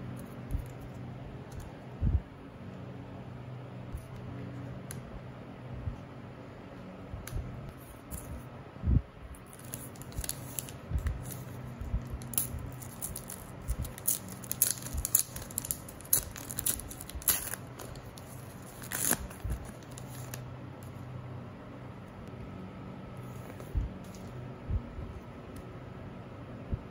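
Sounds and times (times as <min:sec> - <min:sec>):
foil pack tearing and crackling: 0:12.2 - 0:20.4.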